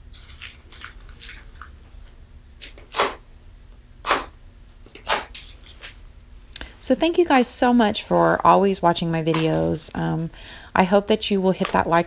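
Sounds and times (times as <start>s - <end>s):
slime squelching: 0.0s - 6.7s.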